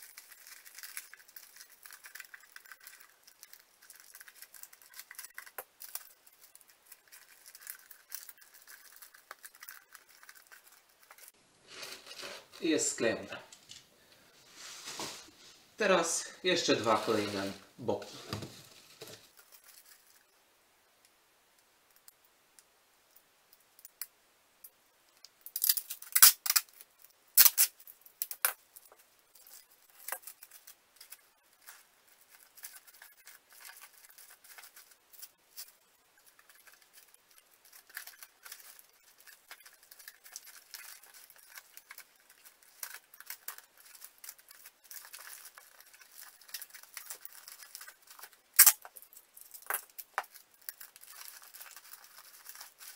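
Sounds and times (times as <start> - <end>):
tape crackling on cardboard: 0.0 - 15.6, 16.8 - 20.3, 25.1 - 52.9.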